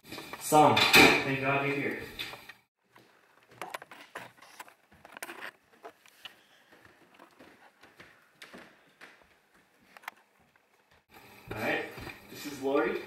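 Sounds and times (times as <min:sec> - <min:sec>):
footsteps on wooden stairs: 0:06.6 - 0:12.2.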